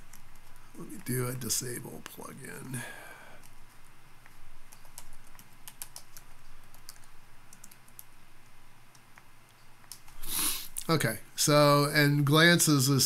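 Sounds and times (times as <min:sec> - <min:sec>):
typing on computer keyboard: 0:03.4 - 0:08.1.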